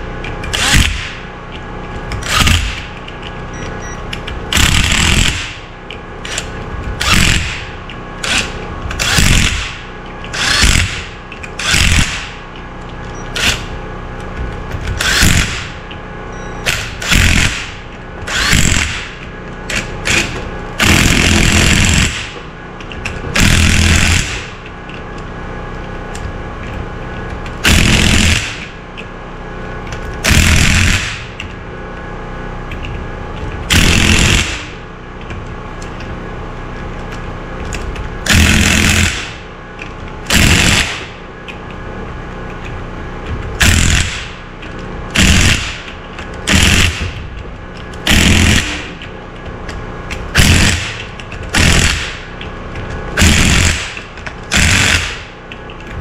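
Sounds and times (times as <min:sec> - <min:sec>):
impact tool hammering: 0:06.3 - 0:12.4, 0:45.2 - 0:47.3, 0:48.0 - 0:49.1, 0:49.7 - 0:52.4, 0:53.2 - 0:55.4.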